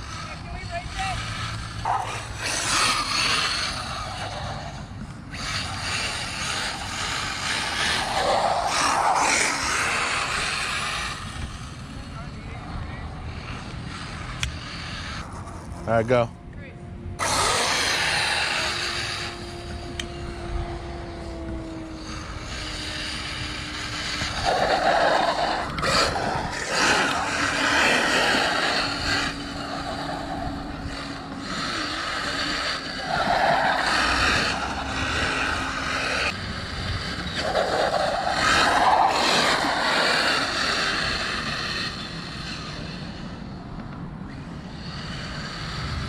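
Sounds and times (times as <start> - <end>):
electric motor whine: 0.0 - 46.0
tyres hissing over pavement: 22.0 - 43.6, 44.5 - 46.0.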